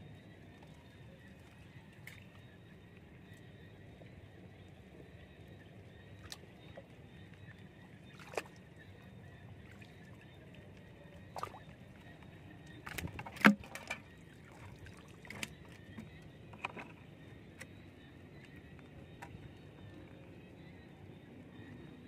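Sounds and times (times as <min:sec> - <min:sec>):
water splashing: 0:12.8 - 0:15.8.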